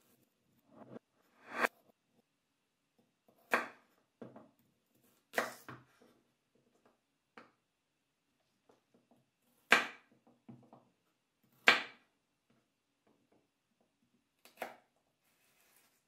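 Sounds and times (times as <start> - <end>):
knife chopping carrots on board: 3.3 - 6.1, 9.6 - 10.8, 11.5 - 12.1, 14.4 - 14.9.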